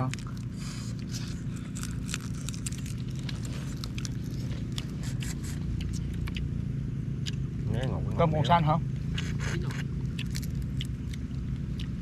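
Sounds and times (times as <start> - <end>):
low hum: 0.0 - 12.0
shells crunching: 1.3 - 4.8.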